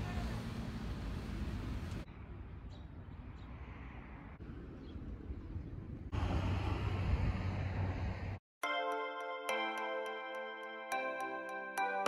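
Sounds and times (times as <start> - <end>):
distant traffic hum: 0.0 - 8.4
wind: 0.0 - 9.9.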